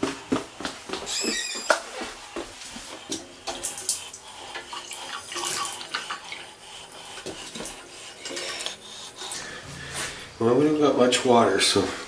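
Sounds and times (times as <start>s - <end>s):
water splashing from faucet: 3.0s - 9.6s.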